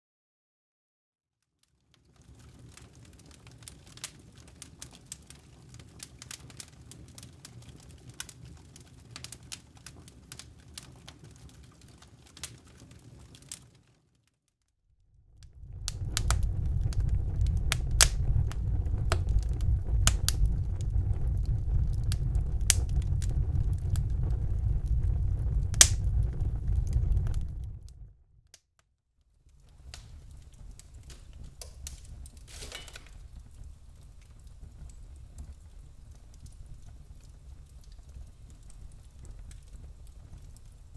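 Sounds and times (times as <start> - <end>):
flames: 1.6 - 14.4, 15.1 - 28.5, 29.2 - 40.9
fire crackling and popping: 1.6 - 40.9
deep low rumble: 15.0 - 28.4, 29.5 - 40.9.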